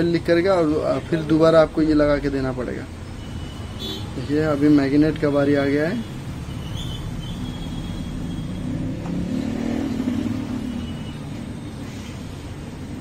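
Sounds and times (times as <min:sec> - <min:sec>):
motor vehicle rumbling: 0:04.2 - 0:13.0.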